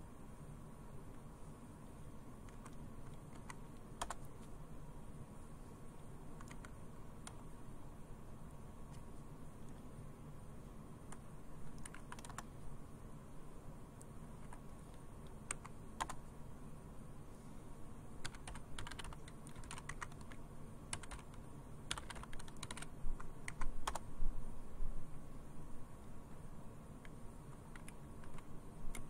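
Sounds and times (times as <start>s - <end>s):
keyboard typing: 2.4s - 4.5s, 6.4s - 7.5s, 11.1s - 12.6s, 14.4s - 16.3s, 18.2s - 24.1s, 27.0s - 29.0s.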